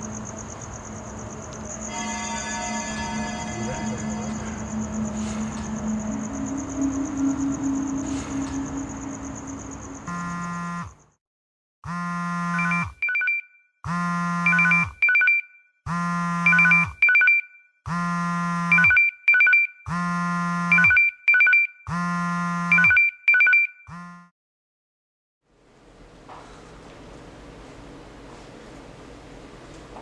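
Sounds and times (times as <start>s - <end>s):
smartphone alarm tone and chirps: 10.1s - 11.0s, 11.9s - 24.3s.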